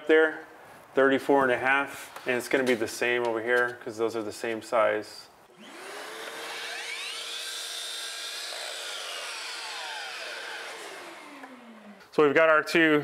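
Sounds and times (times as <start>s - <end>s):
miter saw cutting wood: 5.5s - 12.1s.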